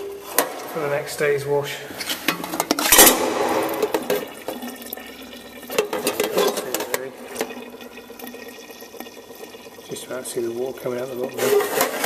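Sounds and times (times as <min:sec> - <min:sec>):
water running and splashing: 0:02.9 - 0:12.0.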